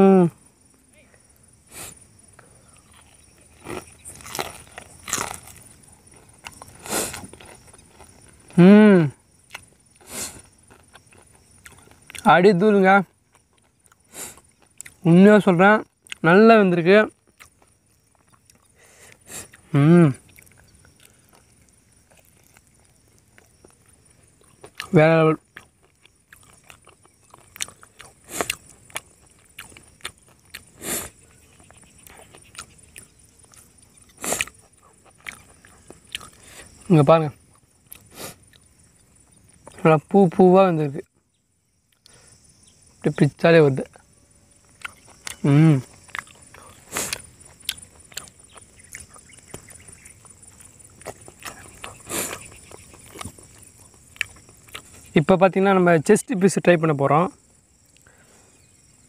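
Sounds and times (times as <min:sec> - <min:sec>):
insect chirring: 0:00.0 - 0:59.0
chewing and lip smacks: 0:02.4 - 0:08.4, 0:09.4 - 0:09.8, 0:10.4 - 0:12.3, 0:13.3 - 0:15.0, 0:16.0 - 0:16.2, 0:17.2 - 0:36.9, 0:37.5 - 0:39.8, 0:44.6 - 0:55.1
breathy puffs: 0:06.7 - 0:07.4, 0:30.6 - 0:32.4, 0:51.5 - 0:52.7.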